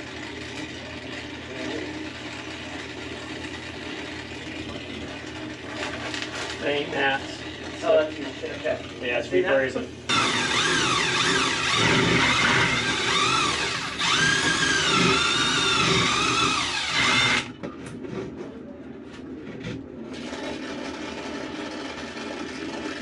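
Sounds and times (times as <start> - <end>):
cordless drill motor whining: 10.1 - 17.5.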